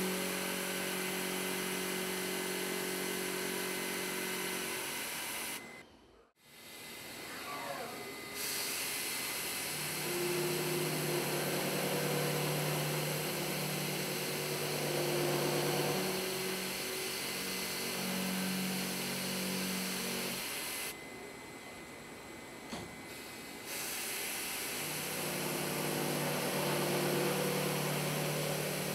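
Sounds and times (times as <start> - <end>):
milling spindle cutting steel: 0.0 - 5.8, 8.1 - 20.9, 23.7 - 28.9
low machine hum: 9.5 - 23.7.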